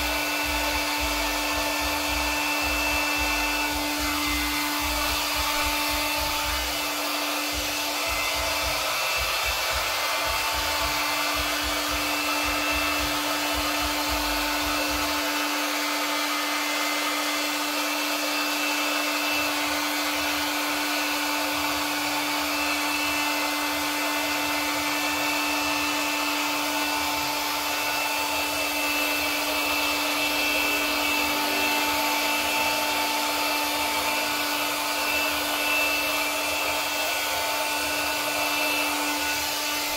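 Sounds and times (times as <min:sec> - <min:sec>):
hot-air blower running: 0:00.0 - 0:39.9.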